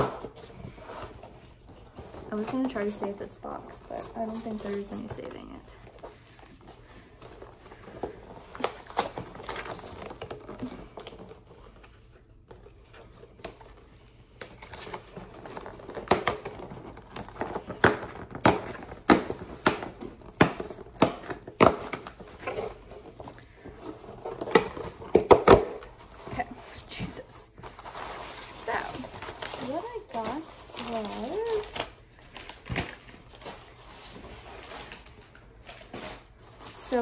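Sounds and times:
cardboard crinkling and rustling: 0.0s - 37.0s
cardboard and tape ripping: 7.4s - 23.2s, 23.8s - 37.0s.

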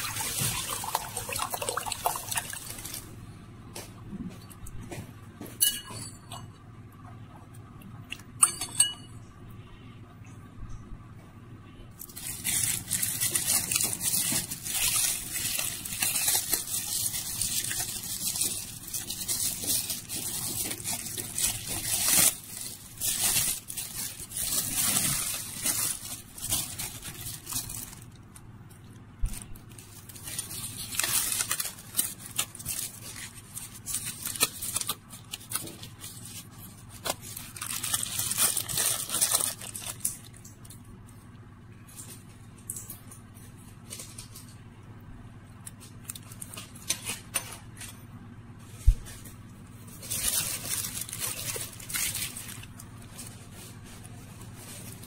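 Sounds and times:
plastic bag crinkling: 0.0s - 3.2s, 12.0s - 40.8s, 45.7s - 47.3s, 48.8s - 55.0s.

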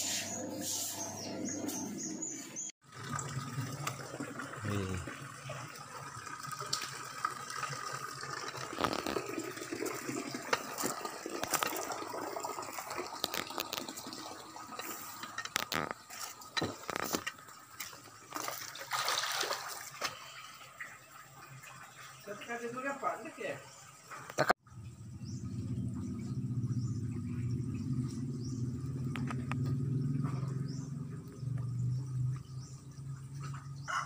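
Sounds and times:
fish splashing in water: 17.8s - 20.5s.

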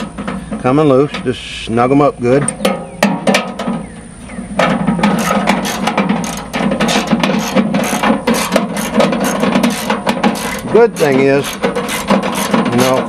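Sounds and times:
ratchet wrench clicking: 5.2s - 12.5s.

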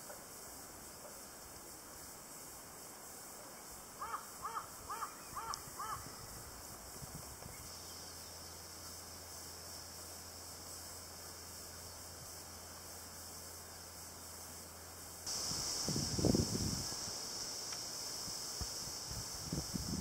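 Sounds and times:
faint steady hiss: 0.0s - 20.0s
loud high-pitched hiss: 14.6s - 20.0s.

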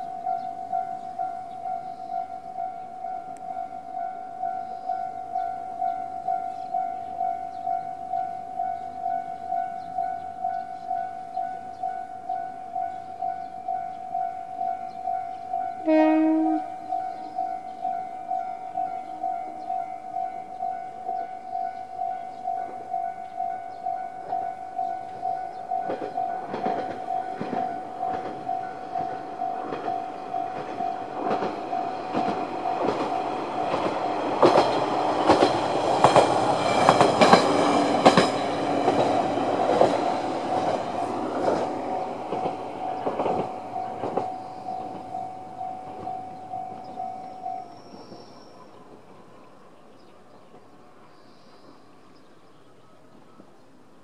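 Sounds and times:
level crossing alarm pulsing: 0.0s - 48.0s
train wheels clacking on rail joints: 20.6s - 49.1s.

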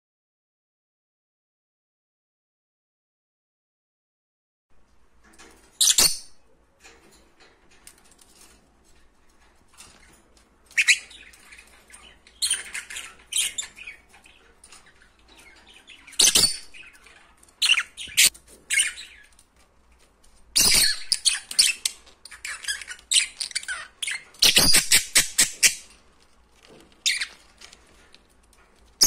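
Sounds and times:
lovebirds chirping shrilly: 10.7s - 19.3s, 20.6s - 25.9s, 27.0s - 27.4s.

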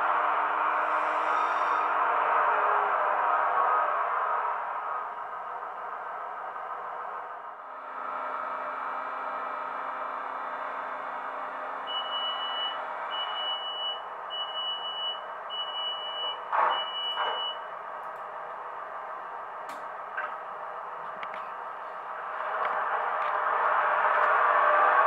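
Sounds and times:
high beeps: 11.9s - 17.6s.

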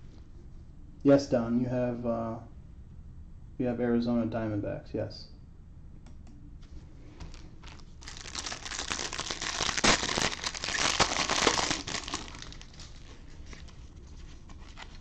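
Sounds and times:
plastic wrapper crinkling: 7.2s - 15.0s.

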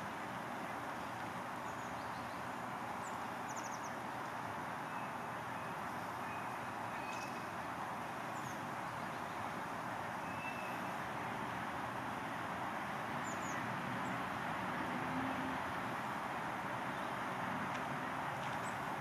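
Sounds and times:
rushing outdoor background noise: 0.0s - 19.0s
faint high bird chirps: 4.8s - 7.5s, 10.2s - 11.0s.

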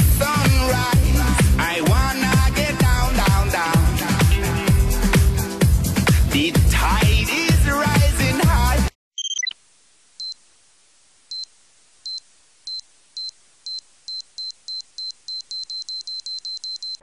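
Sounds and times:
high electronic beeps: 9.2s - 9.6s, 12.1s - 17.0s.

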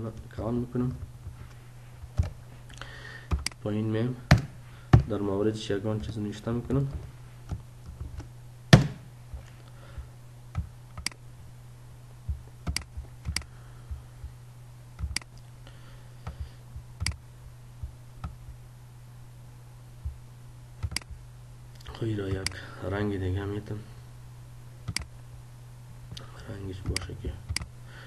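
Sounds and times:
steady low hum: 0.0s - 28.0s
keyboard and mouse clicks: 10.6s - 11.2s, 12.6s - 13.5s, 15.0s - 15.4s, 20.8s - 21.1s, 24.9s - 25.1s.

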